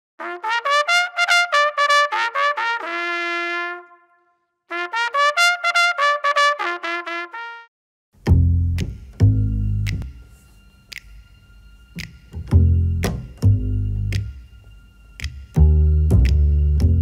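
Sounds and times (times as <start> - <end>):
trumpet jingle: 0.2 - 7.7.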